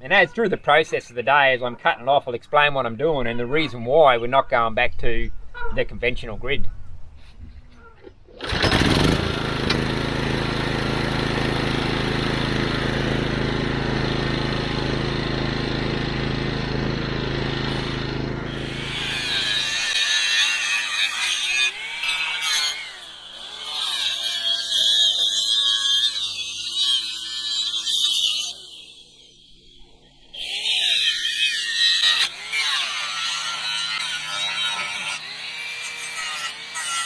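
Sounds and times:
generator engine running: 0:08.4 - 0:20.0
angle grinder cutting steel: 0:08.4 - 0:37.0.

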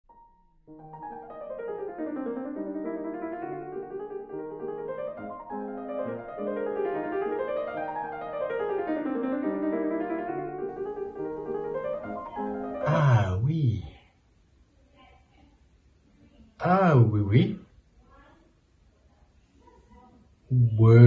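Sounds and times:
piano music: 0:00.1 - 0:13.5.

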